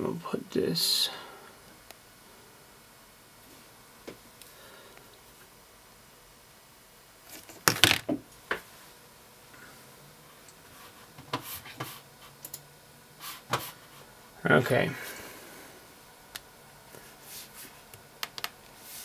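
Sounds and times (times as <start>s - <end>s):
smartphone set down on wooden desk: 7.7s - 8.2s.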